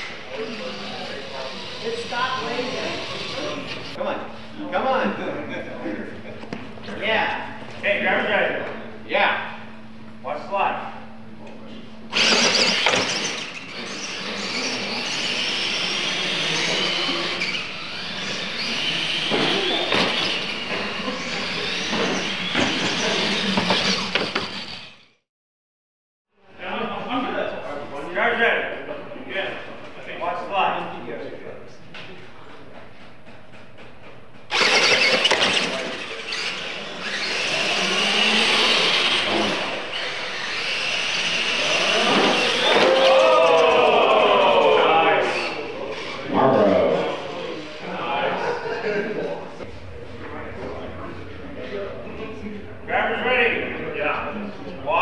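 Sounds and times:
toy truck motors whining: 0.0 - 4.0, 12.1 - 25.2, 34.5 - 47.8.

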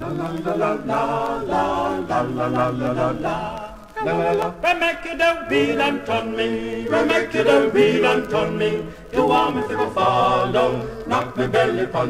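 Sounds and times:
male voices singing in harmony: 0.0 - 12.0.

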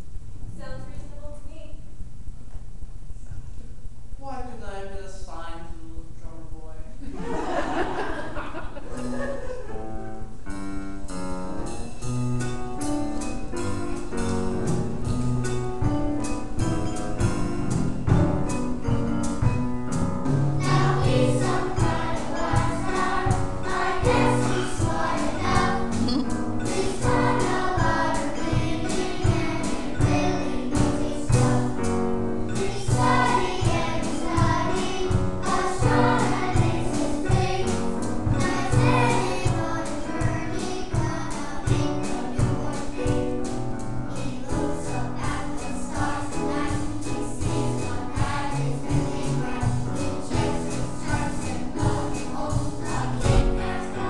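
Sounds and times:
instrumental accompaniment with beat: 8.8 - 9.4, 10.4 - 54.0
choir singing a hymn: 20.3 - 43.3, 44.1 - 54.0.

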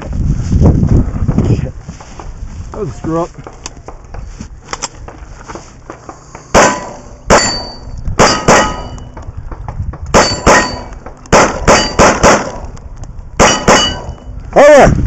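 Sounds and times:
rapid pistol fire: 6.5 - 9.0, 10.1 - 12.7, 13.4 - 14.1
metallic ringing clang: 6.6 - 9.2, 10.2 - 10.9, 13.4 - 14.3.

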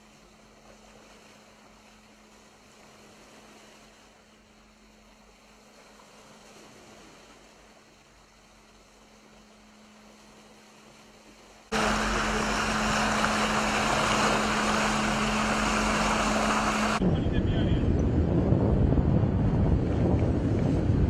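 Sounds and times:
wind and sea water rushing: 0.0 - 21.0
low hum: 11.5 - 21.0.

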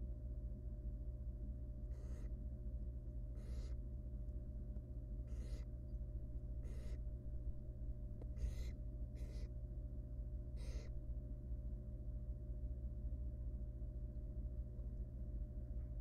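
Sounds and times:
low hum: 0.0 - 16.0
owl chick hoarse hisses: 1.9 - 2.3, 3.4 - 3.8, 5.3 - 5.8, 6.6 - 7.1, 8.3 - 9.6, 10.6 - 11.0.

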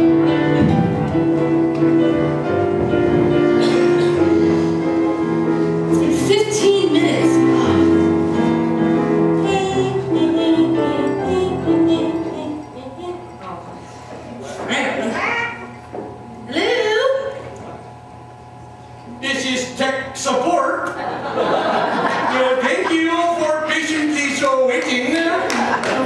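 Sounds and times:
bass line: 0.0 - 8.3
sustained chords: 0.0 - 13.9.

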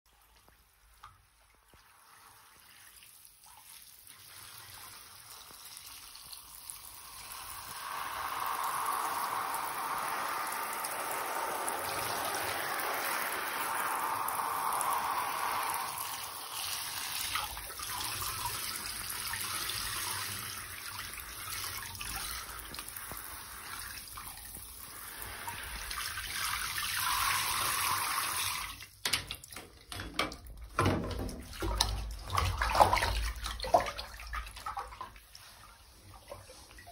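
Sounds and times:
shower water spraying: 1.8 - 28.8.

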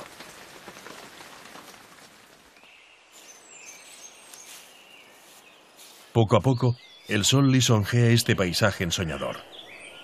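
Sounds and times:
rain falling: 0.0 - 3.3
small birds chirping: 0.0 - 10.0.

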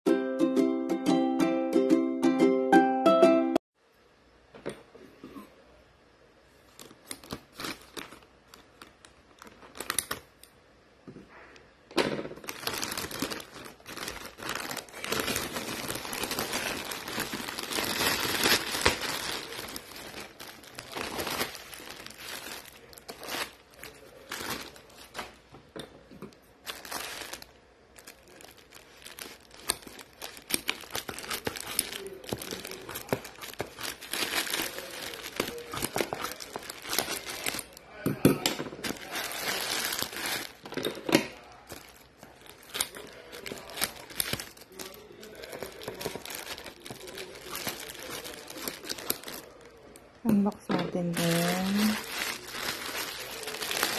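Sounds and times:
bubble wrap rustling and crackling: 6.6 - 10.5, 12.2 - 25.5, 26.3 - 53.9
plastic mailer tearing and crinkling: 6.7 - 10.4, 12.1 - 25.4, 26.6 - 37.8, 38.7 - 49.8, 51.0 - 53.9
scissors cutting plastic mailer: 12.4 - 23.6, 29.1 - 37.8, 41.7 - 49.5.

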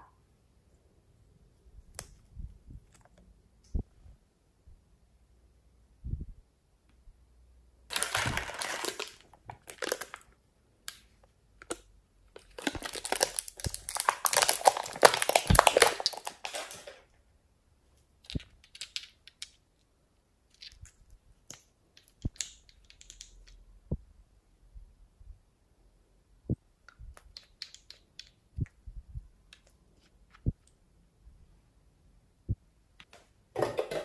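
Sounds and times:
thin plastic crinkling: 7.9 - 10.3, 11.6 - 17.0.

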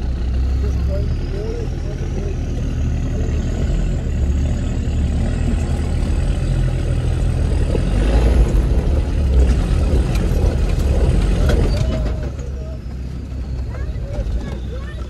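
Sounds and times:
diesel engine running under load: 0.0 - 15.0.

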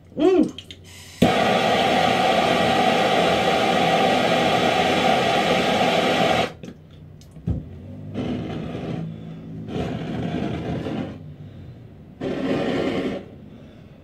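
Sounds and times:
propane torch hissing: 0.9 - 6.6, 8.1 - 11.3, 12.2 - 13.6.

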